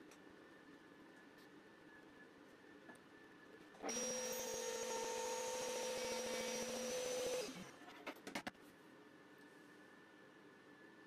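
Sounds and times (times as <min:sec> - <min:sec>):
router table whining: 0:03.8 - 0:07.8.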